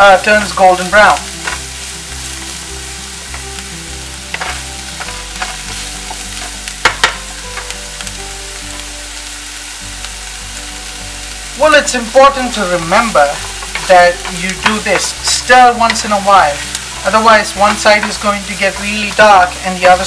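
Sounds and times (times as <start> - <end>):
onions sizzling in hot oil: 0.0 - 20.0
spatula scraping and tapping pan: 1.2 - 1.7, 3.2 - 7.8, 12.8 - 19.3.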